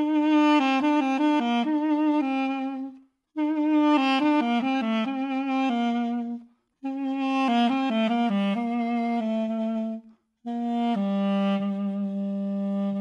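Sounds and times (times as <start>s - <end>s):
duduk melody: 0.0s - 13.0s.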